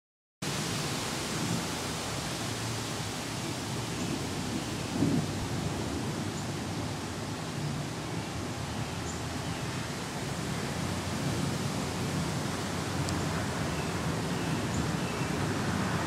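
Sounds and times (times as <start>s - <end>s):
steady rain hiss: 0.4s - 16.0s
low thunder rumble: 4.1s - 6.8s.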